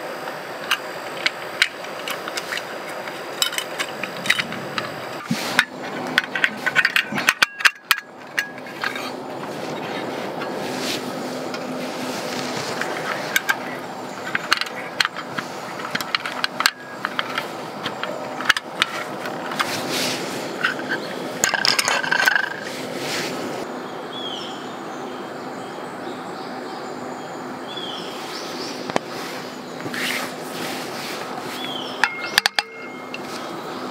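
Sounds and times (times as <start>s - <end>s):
pan scraping and clattering: 1.9s - 23.6s.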